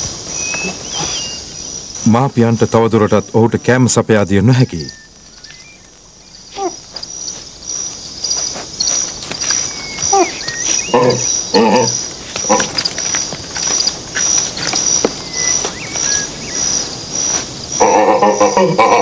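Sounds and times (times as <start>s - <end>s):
insects chirping: 0.0s - 19.0s
short animal calls: 0.4s - 1.5s, 5.0s - 7.0s, 9.6s - 12.8s.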